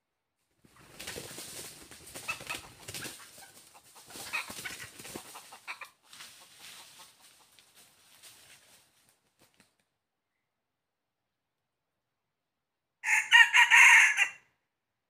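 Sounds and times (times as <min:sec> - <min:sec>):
rustling noise: 0:00.6 - 0:09.9
junglefowl clucking: 0:02.1 - 0:07.6.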